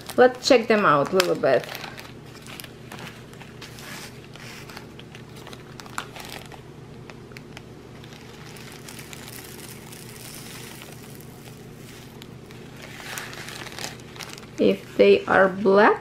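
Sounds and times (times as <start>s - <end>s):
plastic bag crinkling: 0.0s - 15.4s
small beads pattering into tray: 8.2s - 12.2s.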